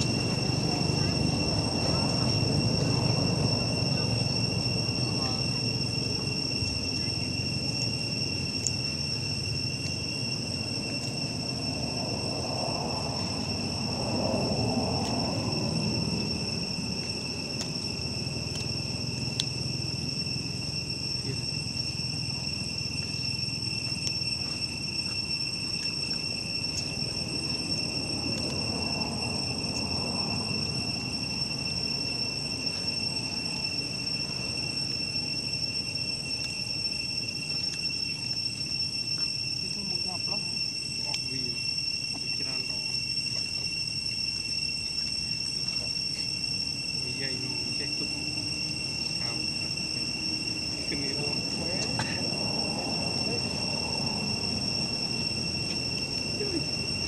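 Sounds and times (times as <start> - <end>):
insect chorus buzzing: 0.0 - 57.0
low background rumble: 0.0 - 57.0.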